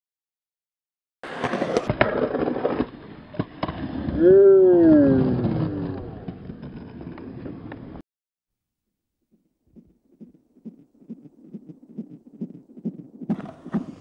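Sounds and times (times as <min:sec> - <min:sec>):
skateboard wheels rolling on concrete: 0:01.2 - 0:08.0, 0:09.8 - 0:14.0
skateboard clacks: 0:12.0 - 0:14.0.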